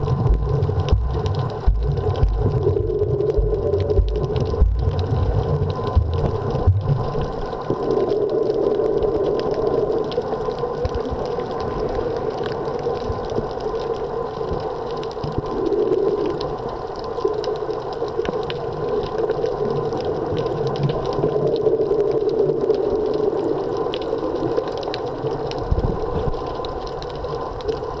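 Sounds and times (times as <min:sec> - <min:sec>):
low bumps: 0:00.0 - 0:06.9
muffled underwater hum: 0:00.0 - 0:12.7
crackling clicks: 0:00.0 - 0:28.0.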